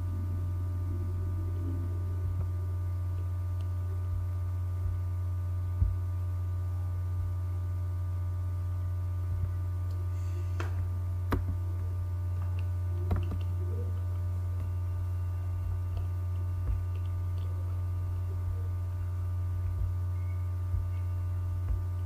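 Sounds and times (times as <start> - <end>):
electrical hum: 0.0 - 22.0
faint high buzz: 0.0 - 22.0.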